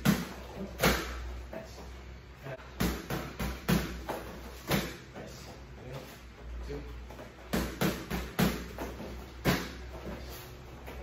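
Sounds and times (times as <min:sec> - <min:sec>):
strikes smacking into pads: 0:07.5 - 0:09.8.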